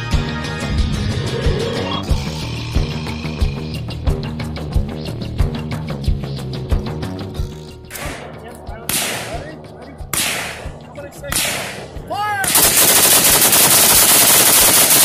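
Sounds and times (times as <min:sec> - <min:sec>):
rifle single shots echoing: 0:08.9 - 0:09.4, 0:10.1 - 0:15.0
rapid rifle shots burst: 0:12.5 - 0:15.0.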